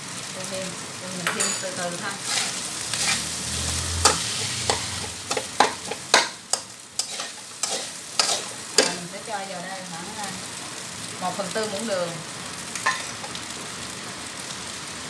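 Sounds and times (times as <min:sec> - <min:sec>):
rice sizzling in a wok: 0:00.0 - 0:15.0
metal spatula clanking on wok: 0:01.2 - 0:03.2, 0:04.0 - 0:09.0, 0:12.8 - 0:13.4.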